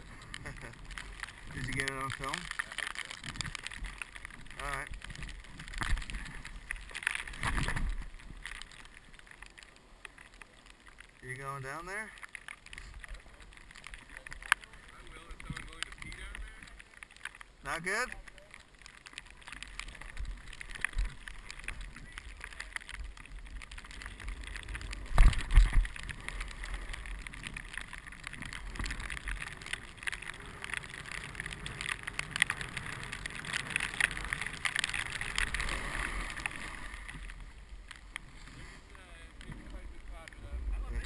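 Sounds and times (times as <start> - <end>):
skis scraping on snow: 0.0 - 10.0, 23.7 - 41.0.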